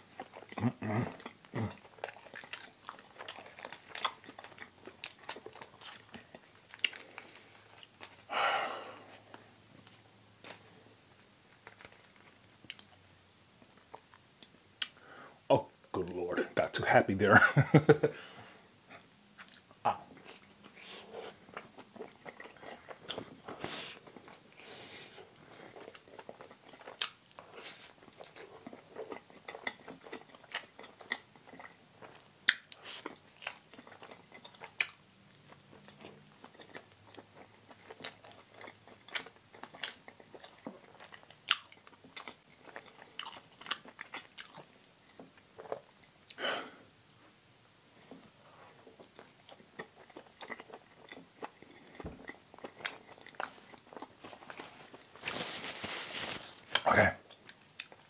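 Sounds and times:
person chewing and biting: 0.2s - 8.3s, 19.4s - 24.5s, 25.2s - 46.4s, 48.8s - 55.2s.

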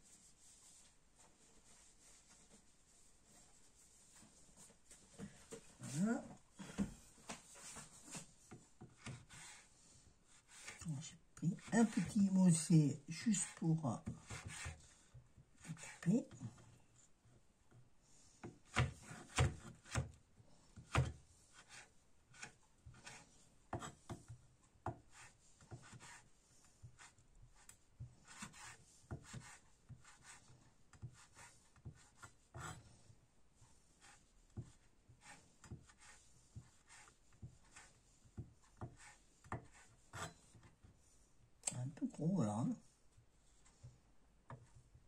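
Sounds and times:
knife chopping on wooden board: 18.7s - 20.1s, 20.8s - 21.2s.

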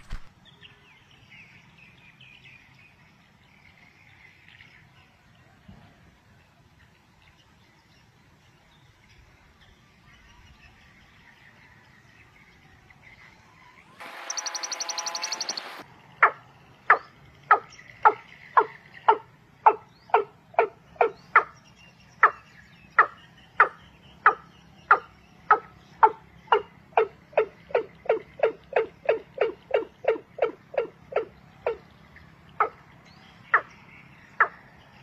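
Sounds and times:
quail sharp downward notes: 13.5s - 15.8s
quail buzzy trill: 13.6s - 21.5s, 23.0s - 31.8s.

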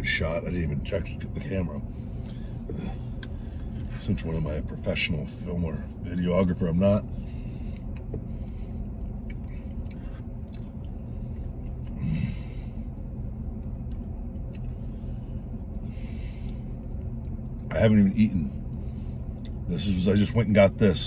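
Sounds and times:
vehicle cabin hum: 0.0s - 21.0s.

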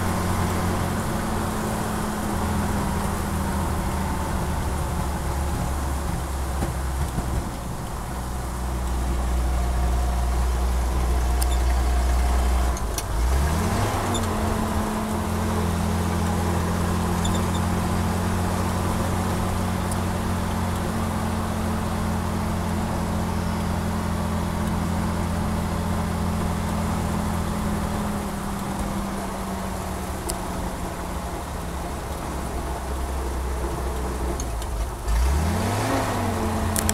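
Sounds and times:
truck engine driving: 0.0s - 36.9s.

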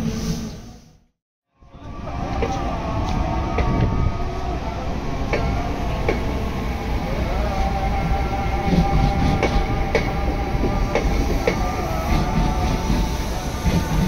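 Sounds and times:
train rumble: 1.7s - 14.0s
train wheels clicking over rail joints: 8.7s - 14.0s.

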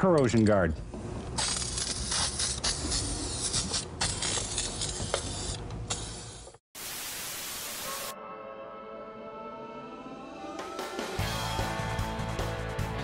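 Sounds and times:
static hiss: 6.8s - 8.1s
music: 7.7s - 13.0s.

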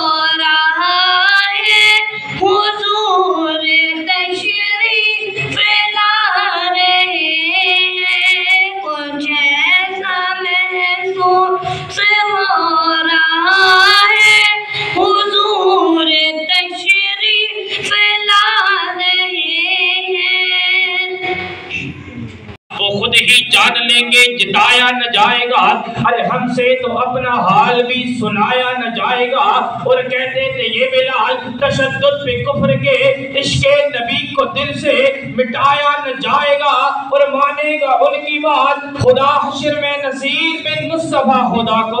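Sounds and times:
boy singing unaccompanied: 0.0s - 21.4s.

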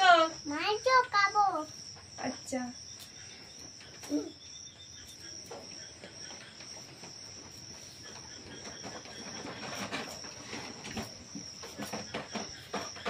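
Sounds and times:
small child voice sound: 0.0s - 1.8s, 4.0s - 4.4s
crickets trilling: 0.0s - 13.0s.

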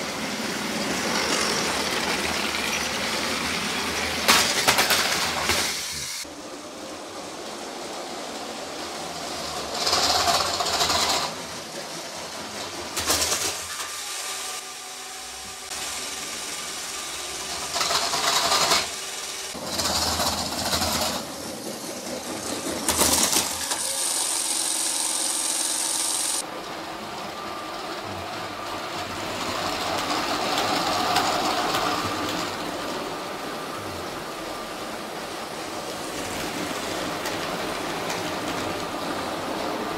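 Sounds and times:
wheels clattering on plastic track: 0.1s - 5.9s, 7.8s - 14.4s, 15.7s - 33.5s, 35.7s - 39.9s
electric toy train motors whirring: 8.8s - 12.0s, 12.6s - 33.1s.

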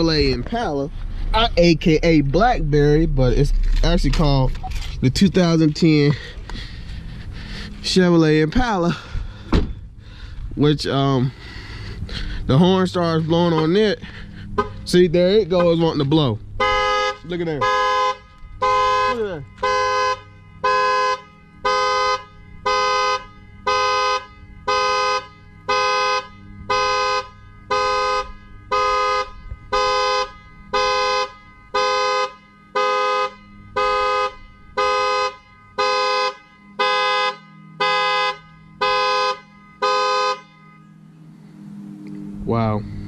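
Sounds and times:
car horn honking: 12.5s - 42.0s.

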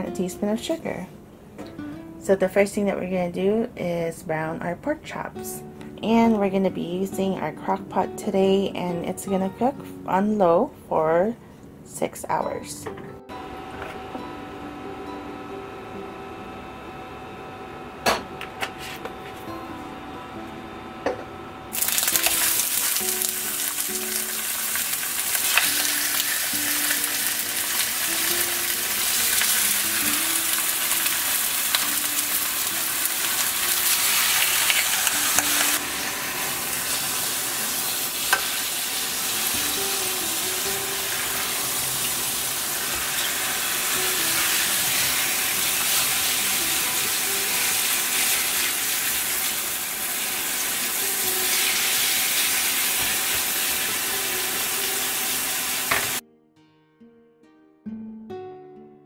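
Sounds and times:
meat sizzling in oil: 21.7s - 56.2s.

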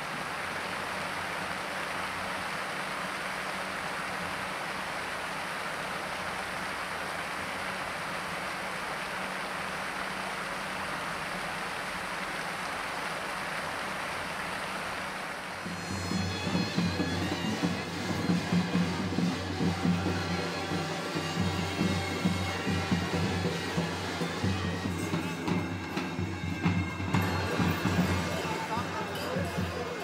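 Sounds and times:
large bells jangling: 23.8s - 30.0s.

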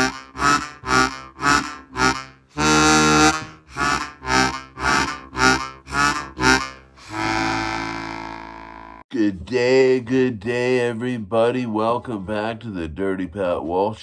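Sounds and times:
harmonica playing chords: 0.0s - 9.1s.

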